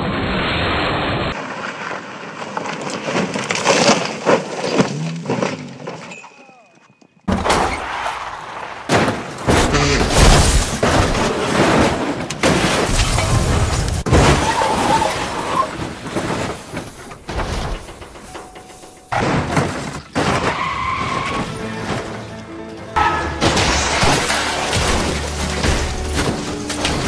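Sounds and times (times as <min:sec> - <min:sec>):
car crash impacts: 0:07.3 - 0:22.1, 0:23.0 - 0:27.0
cars skidding: 0:14.1 - 0:16.7, 0:19.2 - 0:22.3
glass breaking: 0:23.0 - 0:27.0.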